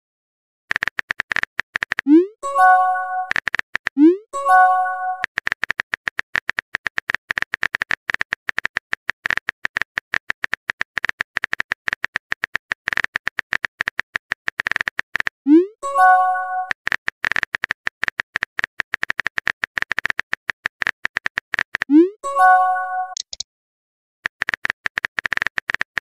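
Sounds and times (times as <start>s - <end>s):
phone keyboard typing clicks: 0.7s - 15.4s, 16.1s - 22.0s, 22.6s - 23.4s, 24.3s - 26.0s
multi-tone chime: 2.4s - 3.3s, 4.4s - 5.2s, 15.8s - 16.7s, 22.2s - 23.2s.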